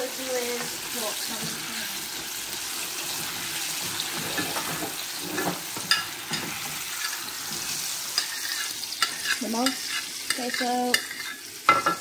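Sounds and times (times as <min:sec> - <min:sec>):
chicken sizzling in hot oil: 0:00.0 - 0:12.0
spatula scraping and knocking pan: 0:03.1 - 0:12.0.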